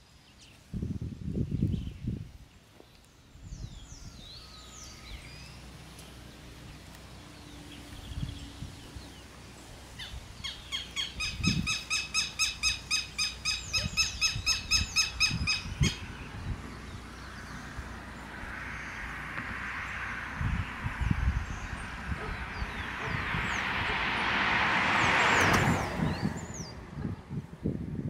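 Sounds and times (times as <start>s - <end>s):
descending whistled bird calls: 3.1s - 6.2s, 7.4s - 17.7s
harsh repeated bird notes: 9.9s - 23.8s.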